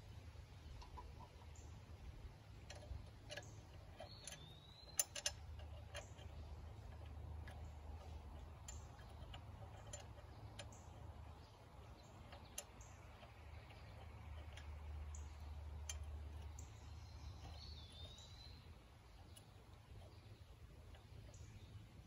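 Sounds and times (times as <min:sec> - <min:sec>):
low steady hum: 0:00.0 - 0:22.0
metal tools clicking: 0:02.5 - 0:18.6.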